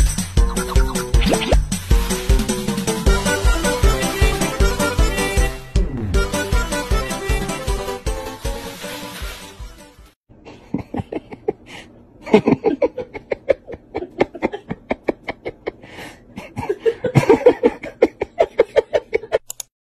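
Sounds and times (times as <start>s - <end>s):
person laughing hard: 10.5s - 19.5s.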